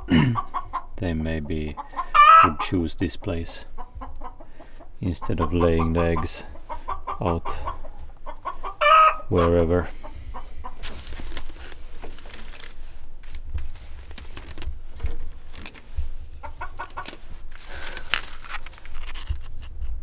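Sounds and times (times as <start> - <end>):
chickens clucking: 0.0 - 13.5, 14.2 - 19.8
rustling in straw: 10.7 - 19.3.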